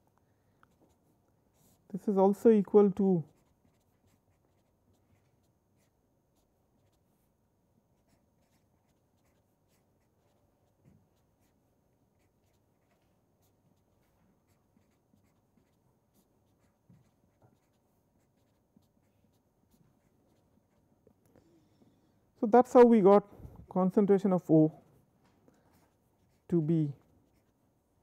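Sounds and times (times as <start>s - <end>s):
felt-tip marker writing on paper: 0.7s - 1.9s, 2.5s - 21.1s, 25.6s - 28.0s.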